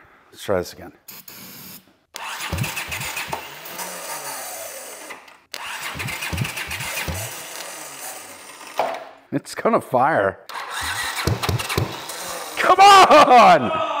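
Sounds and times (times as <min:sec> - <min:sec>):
engine cranking on starter: 0:02.2 - 0:09.0, 0:10.5 - 0:12.6.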